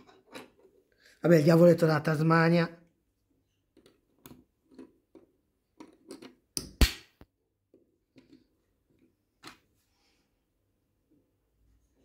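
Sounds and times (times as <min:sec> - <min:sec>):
plastic bricks clicking and tapping: 0:03.7 - 0:07.0.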